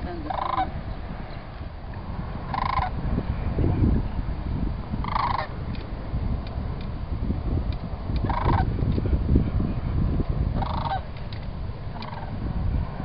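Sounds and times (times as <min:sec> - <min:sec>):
low rumbling noise: 0:00.0 - 0:13.0
cranes rattling calls: 0:00.1 - 0:00.8, 0:02.4 - 0:03.0, 0:05.0 - 0:05.5, 0:08.2 - 0:08.7, 0:10.6 - 0:11.2, 0:11.9 - 0:12.4.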